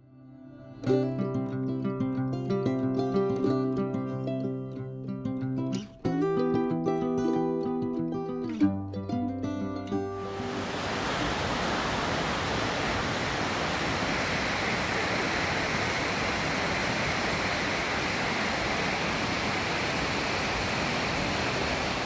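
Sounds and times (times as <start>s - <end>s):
rushing river and waterfall: 10.2s - 22.0s.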